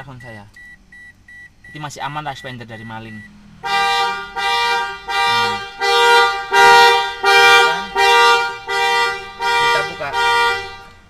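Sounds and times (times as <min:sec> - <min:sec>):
car horn alarm blasts: 0:03.6 - 0:11.0.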